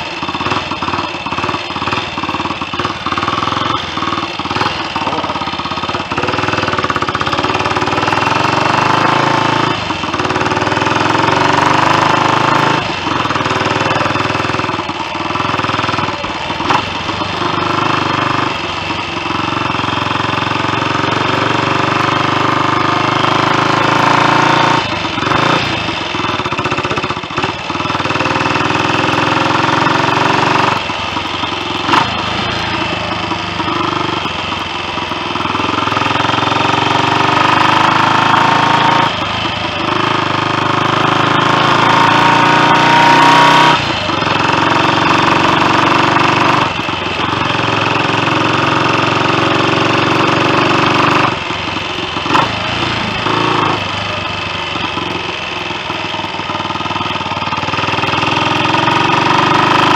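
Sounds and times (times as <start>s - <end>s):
motorcycle engine accelerating: 0.0s - 59.9s.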